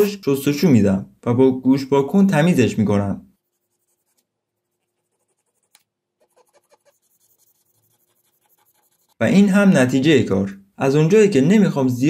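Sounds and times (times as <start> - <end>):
cotton swab scratching: 3.4 - 9.2.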